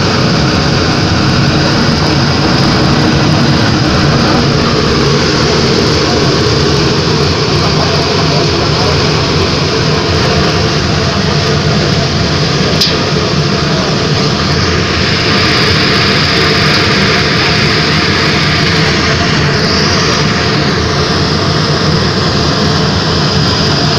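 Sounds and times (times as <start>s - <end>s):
burner flame roaring: 0.0s - 23.9s.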